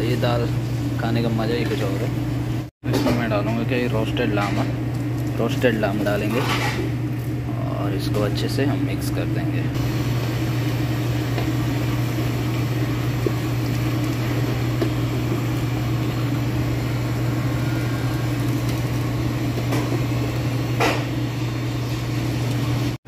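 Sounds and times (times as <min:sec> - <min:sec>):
motor humming: 0:03.7 - 0:23.0
ladle scraping a pot: 0:06.3 - 0:07.0.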